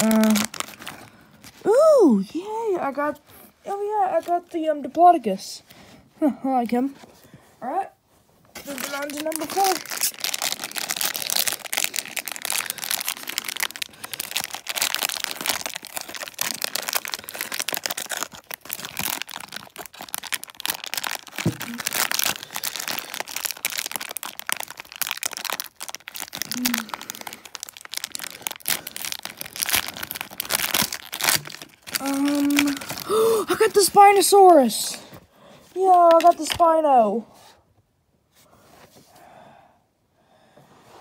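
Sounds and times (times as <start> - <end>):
plastic wrapper crinkling: 0.0 - 1.7, 2.9 - 5.2, 8.5 - 35.1, 35.7 - 36.9.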